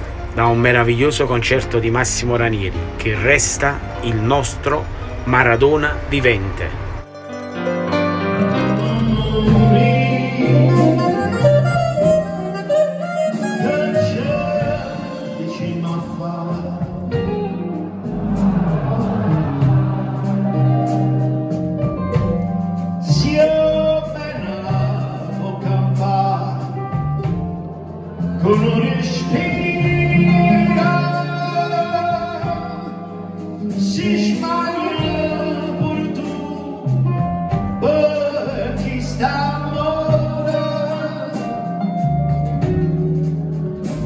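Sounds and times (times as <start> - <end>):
small band playing: 0.0 - 44.0
man singing: 8.4 - 21.2, 23.0 - 27.3, 28.1 - 42.0.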